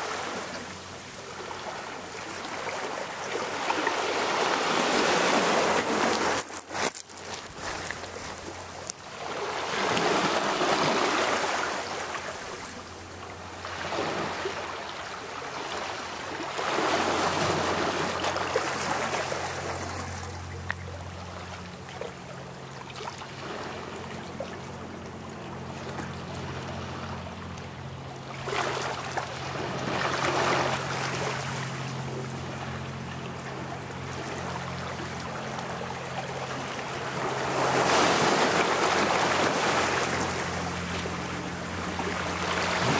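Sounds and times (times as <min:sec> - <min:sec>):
waves washing over pebbles: 0:00.0 - 0:13.0, 0:33.9 - 0:42.9.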